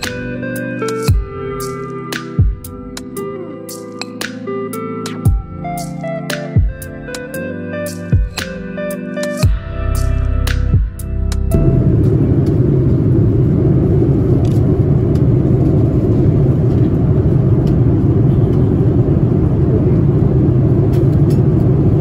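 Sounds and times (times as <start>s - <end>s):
airliner cabin rumble: 11.4s - 22.0s.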